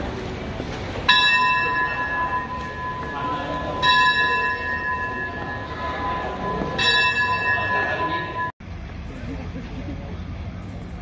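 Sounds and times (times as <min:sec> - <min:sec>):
bell ringing: 0:01.1 - 0:08.6.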